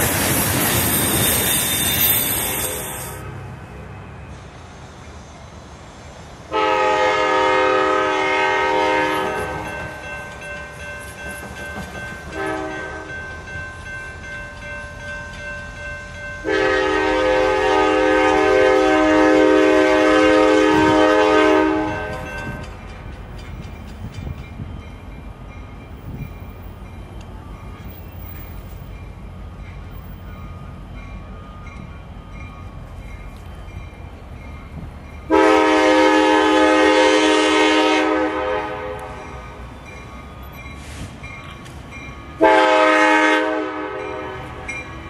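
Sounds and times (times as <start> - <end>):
locomotive air horn blasts: 1.7 - 3.4, 6.5 - 9.8, 12.3 - 13.1, 16.4 - 22.6, 35.3 - 39.4, 42.4 - 44.7.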